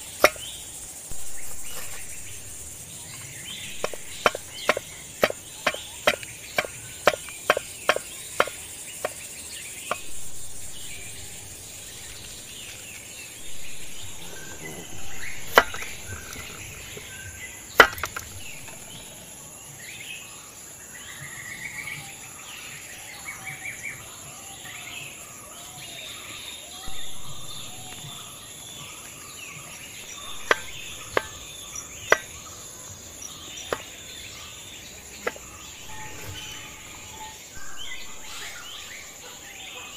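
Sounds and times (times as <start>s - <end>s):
bird chirps: 0.0s - 39.9s
high insect drone: 0.0s - 39.9s
knife chopping on wooden block: 0.2s - 0.4s, 3.8s - 9.2s, 17.8s - 18.2s.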